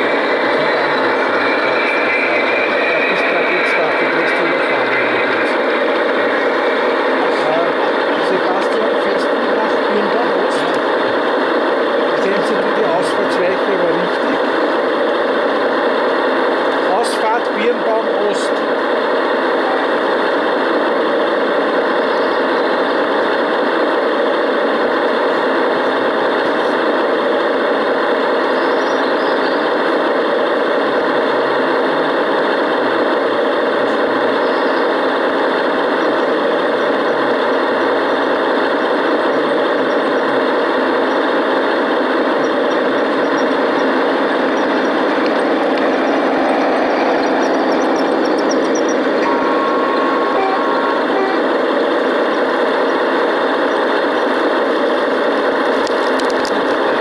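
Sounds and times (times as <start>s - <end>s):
model diesel locomotive running: 0.0s - 57.0s.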